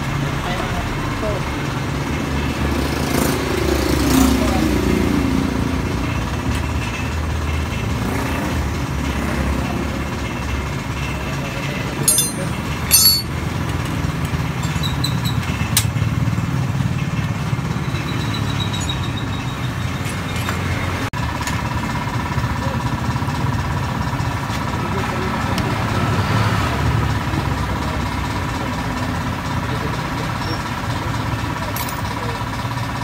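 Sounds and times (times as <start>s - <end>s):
metallic clinks of hand tools: 12.0s - 13.4s, 14.3s - 15.9s, 31.7s - 32.2s.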